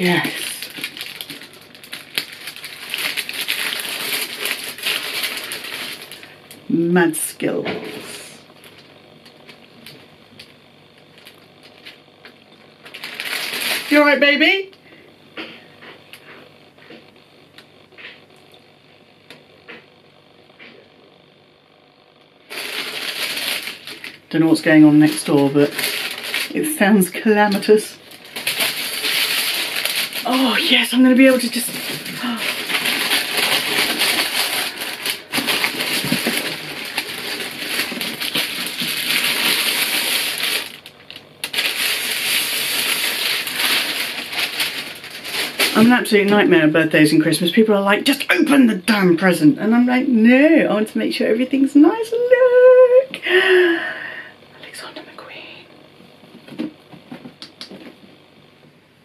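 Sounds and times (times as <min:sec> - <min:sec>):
tissue paper rustling: 0:00.0 - 0:06.3, 0:12.9 - 0:14.2, 0:22.5 - 0:46.2
paper crinkling: 0:00.0 - 0:06.4, 0:12.8 - 0:14.2, 0:22.5 - 0:46.4.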